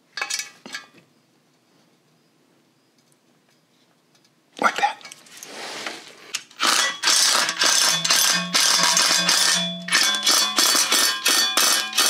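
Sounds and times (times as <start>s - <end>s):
impact driver hammering: 6.6s - 12.0s.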